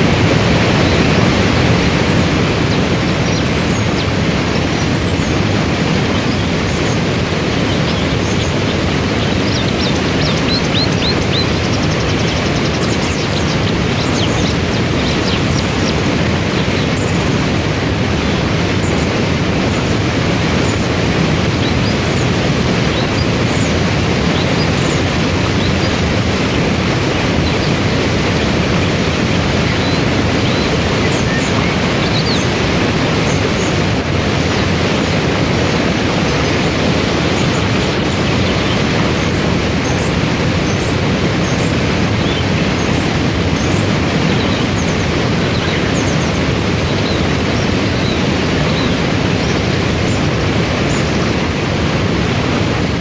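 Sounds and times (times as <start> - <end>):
small birds chirping: 0.0 - 53.0
waterfall and rapids rushing: 0.0 - 53.0.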